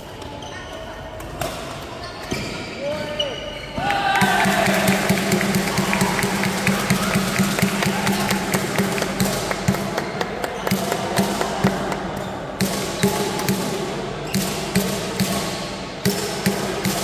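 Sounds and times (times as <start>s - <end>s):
racquets striking shuttlecocks: 4.2s - 17.0s.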